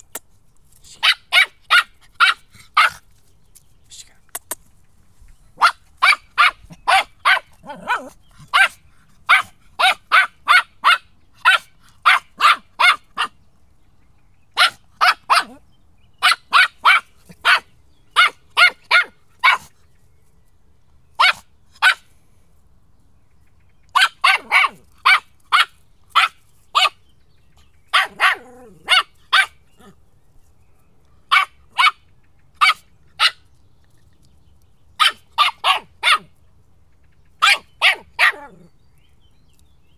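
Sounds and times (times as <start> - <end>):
puppy barking: 1.0 - 3.0, 5.6 - 13.4, 14.6 - 15.6, 16.2 - 19.7, 21.2 - 22.0, 23.9 - 27.0, 27.9 - 30.0, 31.3 - 33.4, 35.0 - 36.3, 37.4 - 38.7.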